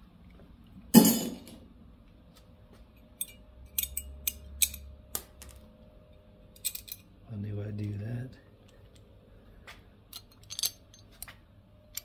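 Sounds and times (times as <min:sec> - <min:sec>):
sharp metallic clank: 0:01.0 - 0:01.6.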